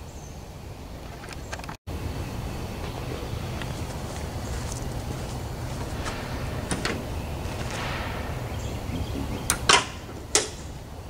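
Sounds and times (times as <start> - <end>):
tailgate metallic clanks: 5.7 - 10.7.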